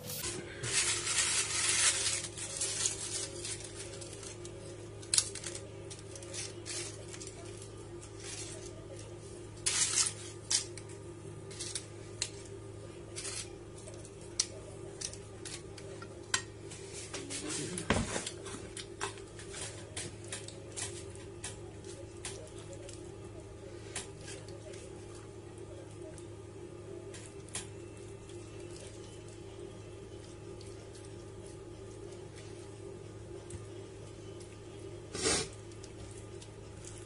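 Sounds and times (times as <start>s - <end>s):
steady low hum: 0.0s - 37.0s
crisp pita clicks and crackles: 0.8s - 9.0s.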